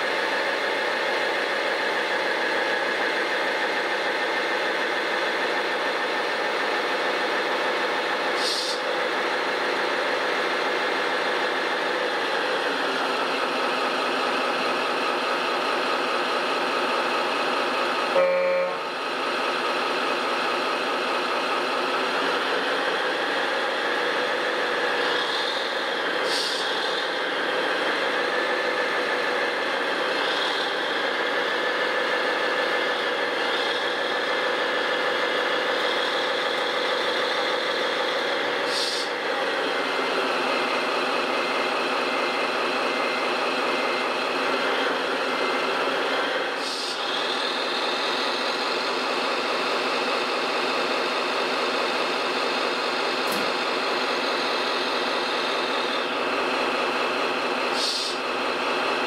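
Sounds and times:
heavy diesel engine running: 0:00.0 - 0:59.0.

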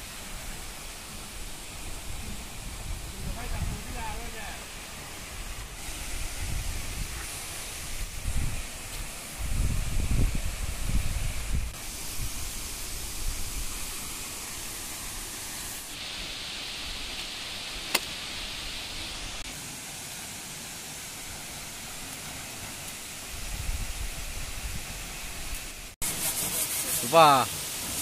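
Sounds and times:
waterfall rushing: 0:00.0 - 0:09.4, 0:11.3 - 0:23.4, 0:24.4 - 0:28.0
wind rumble on microphone: 0:01.8 - 0:04.3, 0:05.4 - 0:13.8, 0:23.3 - 0:25.7
sharp click: 0:17.9 - 0:18.2.

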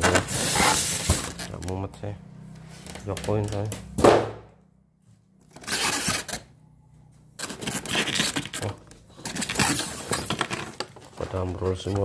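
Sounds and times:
machine scraping in styrofoam packing: 0:00.0 - 0:01.6, 0:05.6 - 0:06.4, 0:07.4 - 0:12.0.

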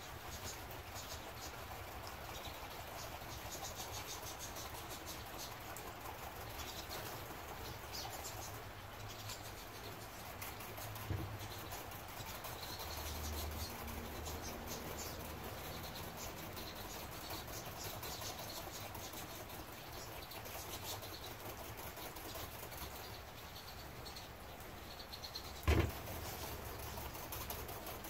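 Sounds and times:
small songbirds chirping: 0:00.0 - 0:28.0
dull thump: 0:25.6 - 0:26.0.

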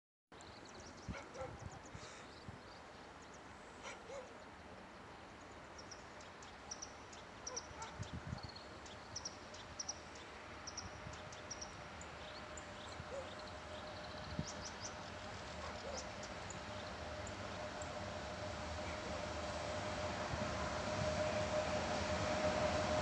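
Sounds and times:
small birds chirping: 0:00.4 - 0:17.6
distant locomotive hum: 0:00.6 - 0:23.0.

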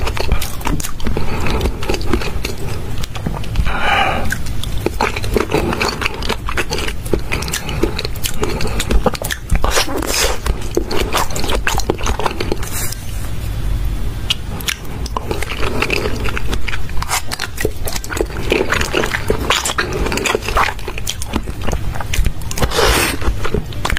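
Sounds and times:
person chewing: 0:00.0 - 0:13.5, 0:14.2 - 0:23.9
sharp mouth clicks: 0:03.0 - 0:05.0.

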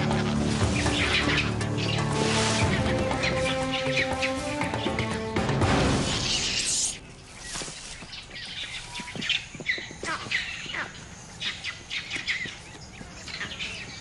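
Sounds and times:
music: 0:00.0 - 0:06.8
birds chirping: 0:00.0 - 0:14.0.

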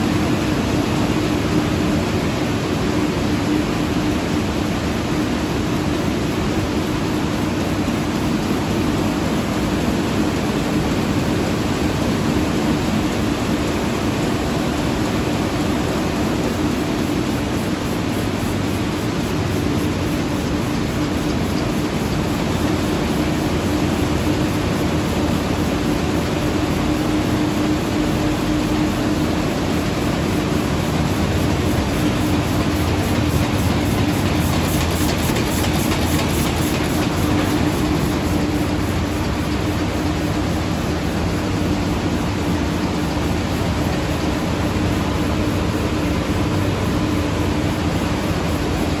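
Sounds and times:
printing press running: 0:00.0 - 0:49.0
fast mechanical ticking: 0:17.2 - 0:49.0.

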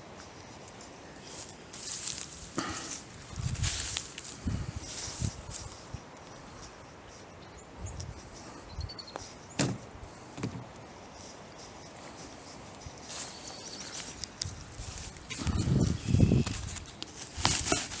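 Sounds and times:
footsteps on grass and leaves: 0:00.0 - 0:06.8, 0:11.3 - 0:18.0.

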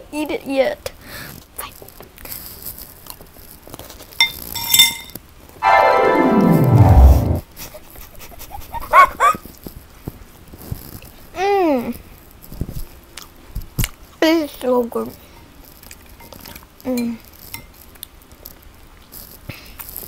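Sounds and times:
tone sliding down in pitch: 0:05.6 - 0:07.4.

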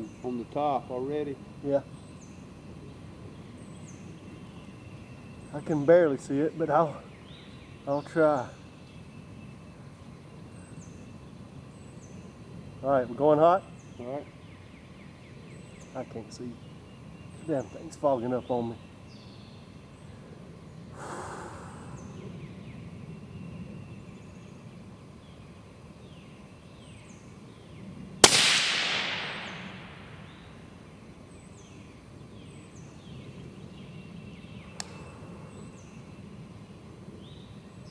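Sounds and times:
suppressed rifle shot: 0:28.2 - 0:30.5
faint click: 0:34.8 - 0:35.0.

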